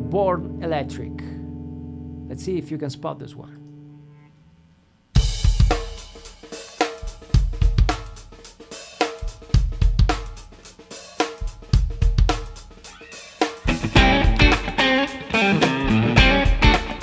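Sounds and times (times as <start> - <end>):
electric guitar playing: 0.0 - 5.6, 13.0 - 17.0
drum kit beat: 5.2 - 17.0.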